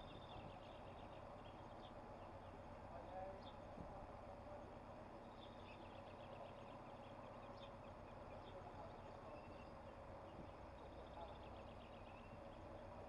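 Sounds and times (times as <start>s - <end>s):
faint birdsong chirps: 0.0s - 13.0s.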